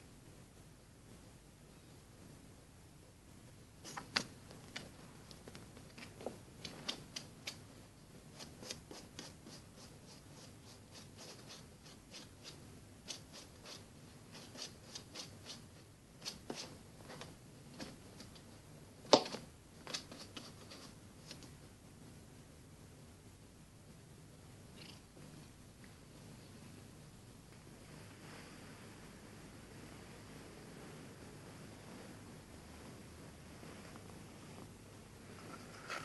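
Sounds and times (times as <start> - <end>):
cat scratching on fabric cushion: 8.3 - 18.3, 19.9 - 21.4.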